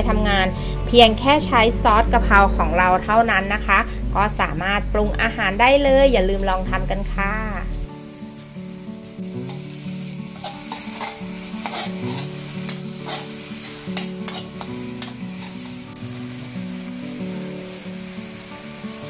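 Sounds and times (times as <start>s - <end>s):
soft background music: 0.0s - 19.0s
meat sizzling in a wok: 7.9s - 19.0s
metal spatula scraping wok: 9.0s - 16.5s.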